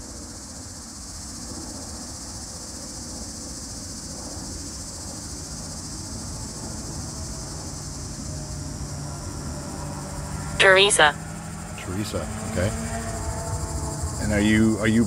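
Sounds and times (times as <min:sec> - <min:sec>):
crickets chirping: 0:00.0 - 0:15.0.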